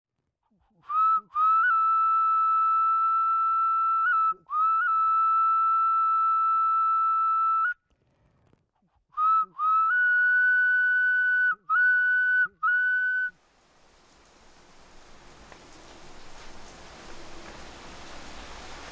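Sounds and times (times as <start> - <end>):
high whistle playing long notes: 0.9 - 7.8, 9.2 - 13.4
soft hiss: 13.0 - 18.9.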